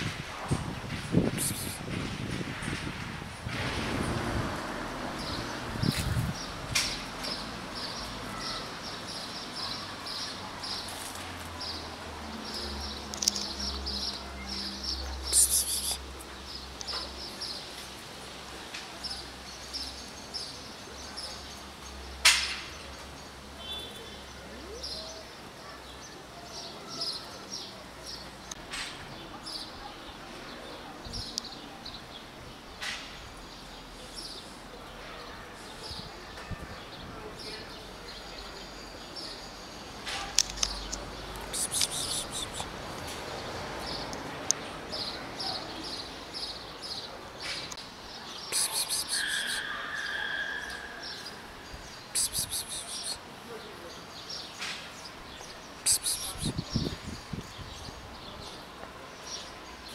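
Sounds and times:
small birds chirping: 5.2 - 18.0, 22.7 - 35.0, 36.8 - 49.7, 51.0 - 59.9.

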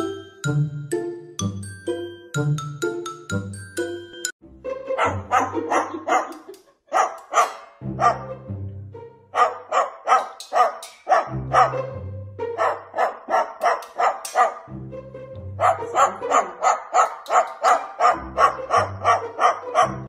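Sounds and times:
rhythmic dog barks: 4.9 - 8.4, 9.4 - 14.7, 15.6 - 20.0.

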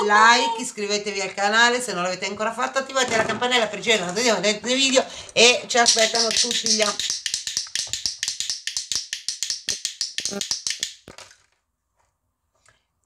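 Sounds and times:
rapid sharp clicks: 5.7 - 11.2.

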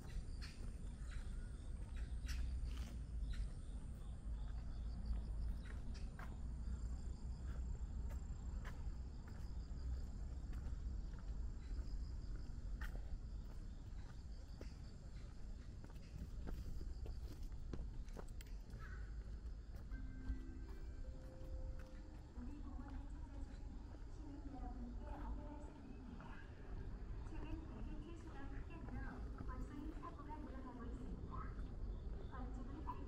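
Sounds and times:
insects chirping in trills: 0.0 - 28.1, 28.7 - 33.0
footsteps: 10.4 - 24.3
faint steady high tone: 19.7 - 23.7.

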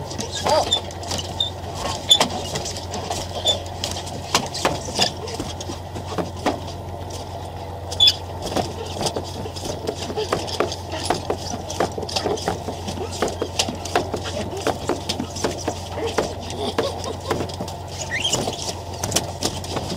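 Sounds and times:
boat engine humming: 0.0 - 19.9
gear knocking on deck: 0.0 - 19.9
short high squeaks: 0.2 - 3.7, 7.9 - 13.6, 17.9 - 19.0.

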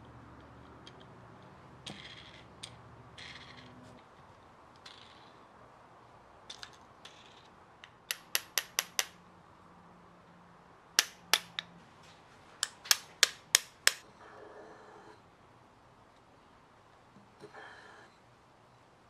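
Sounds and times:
hammer tapping metal blade: 7.8 - 9.2, 11.0 - 11.7, 12.6 - 14.1.

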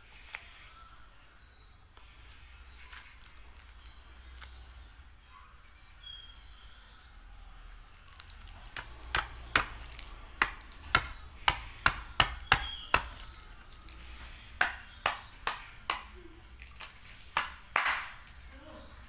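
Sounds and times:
plastic cup and straw knocking: 8.6 - 13.4.

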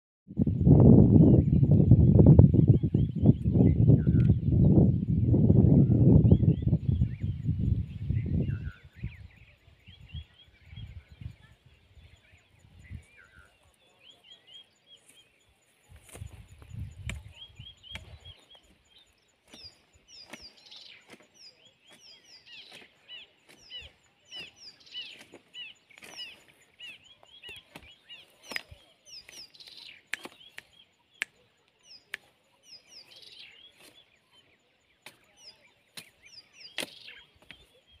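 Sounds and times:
birds chirping: 0.4 - 38.0
sharp clicks: 28.4 - 31.4.

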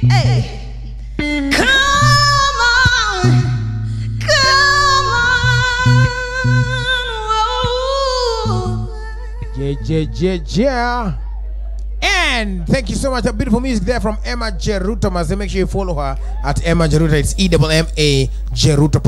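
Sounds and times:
woman singing with vibrato: 0.0 - 9.8
band playing low notes: 0.0 - 19.0.

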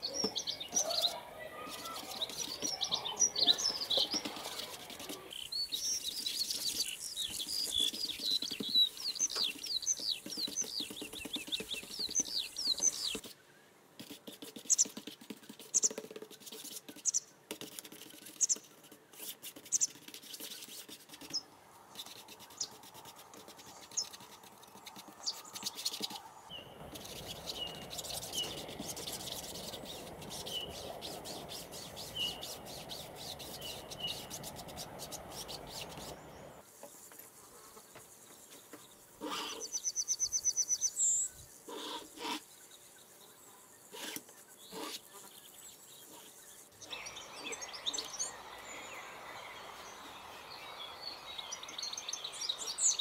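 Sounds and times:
small birds chirping: 0.0 - 53.0
painting tool scraping canvas: 3.5 - 5.4, 14.0 - 26.3, 26.9 - 36.2, 41.7 - 42.5, 43.9 - 46.4.

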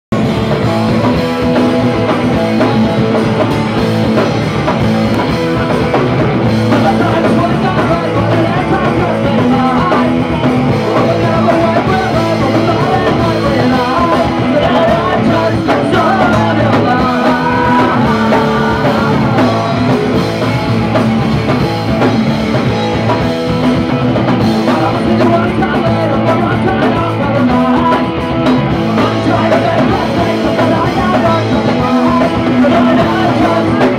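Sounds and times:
drum kit: 0.1 - 33.9
electric guitars: 0.1 - 33.9
man singing: 5.1 - 21.0, 24.3 - 33.9.

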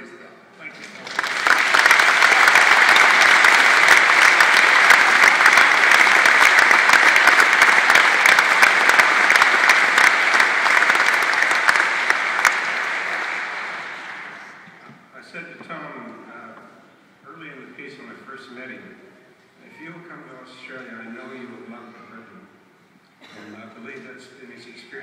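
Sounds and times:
audience applauding: 0.7 - 14.8.

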